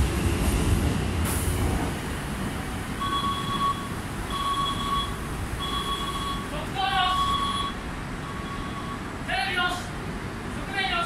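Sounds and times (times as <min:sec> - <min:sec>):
train doors sliding shut: 0:00.0 - 0:04.1
electric train humming: 0:00.0 - 0:06.5
two-note warning beeps: 0:03.0 - 0:06.5, 0:07.1 - 0:09.1.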